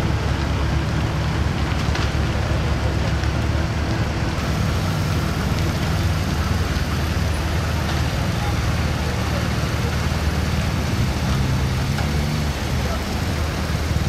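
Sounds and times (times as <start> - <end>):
truck diesel engine droning: 0.0 - 14.0.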